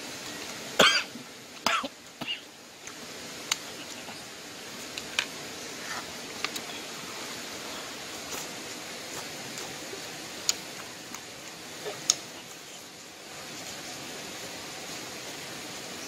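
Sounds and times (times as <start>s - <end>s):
steady rushing noise: 0.0s - 16.0s.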